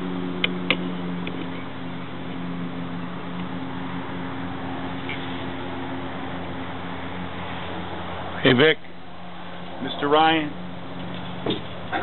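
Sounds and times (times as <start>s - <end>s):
low mechanical hum: 0.0s - 12.0s.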